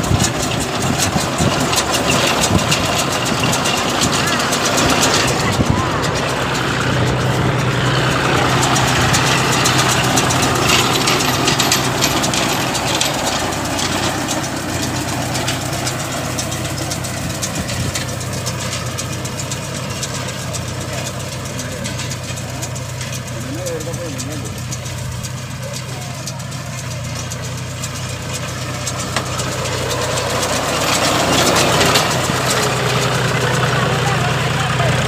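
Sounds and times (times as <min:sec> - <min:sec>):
baler mechanical rattle: 0:00.0 - 0:35.0
tractor diesel engine under load: 0:00.0 - 0:35.0.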